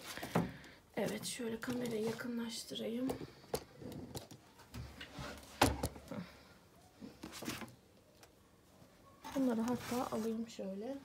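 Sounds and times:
books clicking and rustling: 0:00.0 - 0:06.2, 0:07.1 - 0:08.4.

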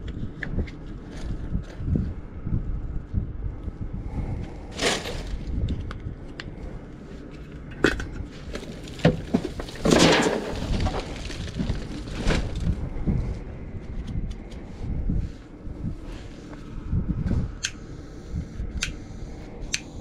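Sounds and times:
crunching rustle: 0:04.5 - 0:05.8, 0:08.3 - 0:14.8
objects knocking and clattering: 0:07.8 - 0:12.1.

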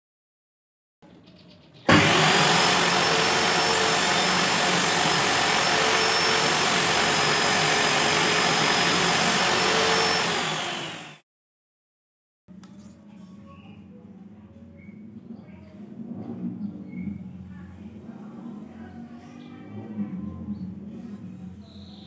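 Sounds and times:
table saw whining: 0:01.9 - 0:11.2.

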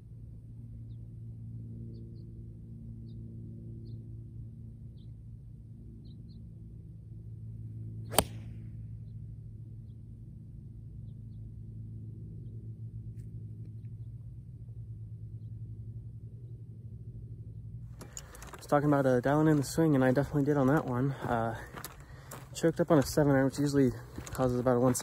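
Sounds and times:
steady low hum: 0:00.0 - 0:25.0
golf club striking ball: 0:08.1 - 0:08.7.

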